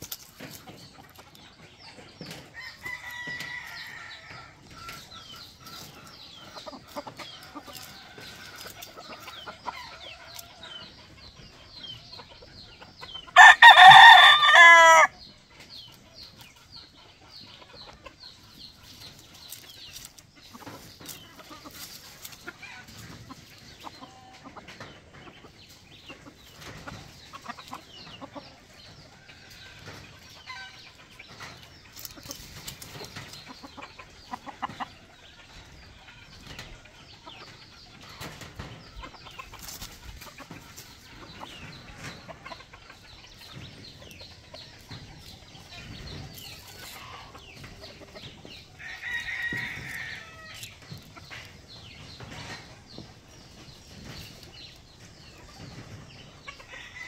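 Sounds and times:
faint chicken clucking: 0:00.0 - 0:57.0
rooster crowing: 0:13.4 - 0:15.1.

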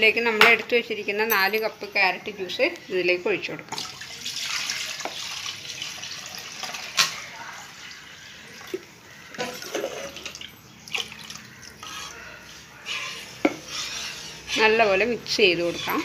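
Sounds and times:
juice pouring and splashing: 0:03.7 - 0:14.6
spoon scraping a bowl: 0:11.5 - 0:16.0.

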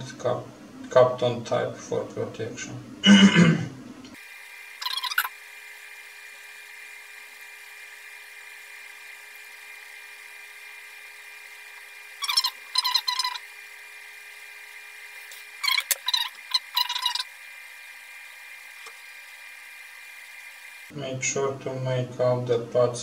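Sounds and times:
solder crackling sizzles: 0:04.1 - 0:20.9.

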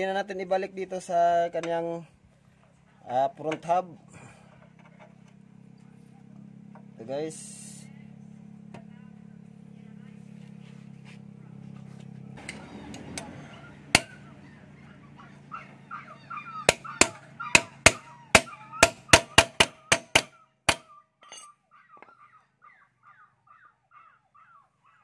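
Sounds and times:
bird calling: 0:12.4 - 0:25.0.

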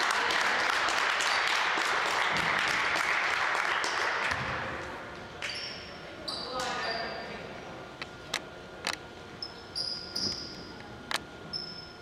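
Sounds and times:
spectators clapping: 0:00.0 - 0:04.8.

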